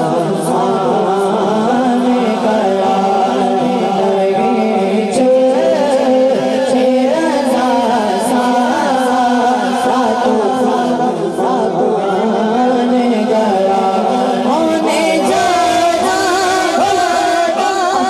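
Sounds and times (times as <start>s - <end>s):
boy singing into a microphone: 0.0s - 18.0s.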